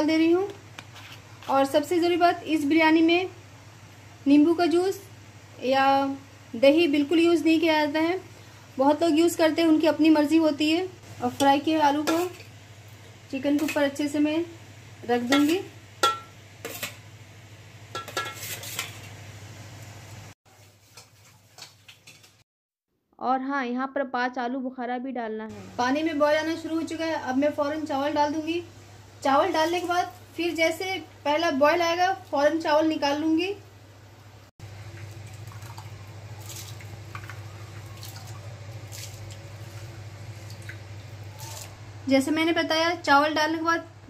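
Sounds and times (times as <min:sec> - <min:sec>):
water boiling in a pot: 0:01.6 - 0:22.4, 0:25.6 - 0:43.1
spoon clinking on steel pot: 0:15.3 - 0:16.9, 0:17.9 - 0:18.5
steady low hum: 0:25.5 - 0:44.0.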